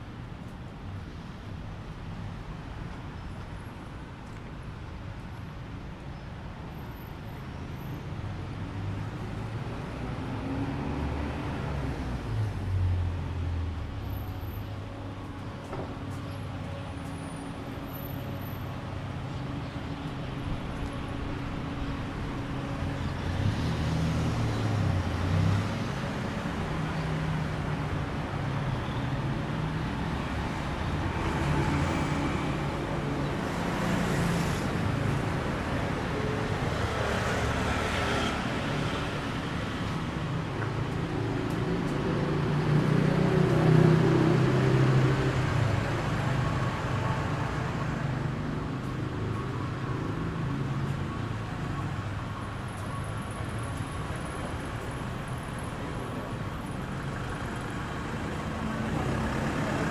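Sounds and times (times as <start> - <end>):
cars driving past: 21.6 - 52.3, 53.5 - 59.9.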